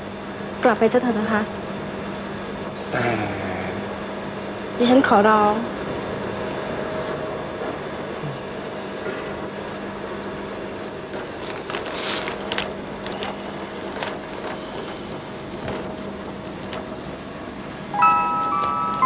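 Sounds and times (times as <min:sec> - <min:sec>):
low hum and hiss: 0:00.0 - 0:19.0
soft music with bell melody: 0:17.9 - 0:19.0.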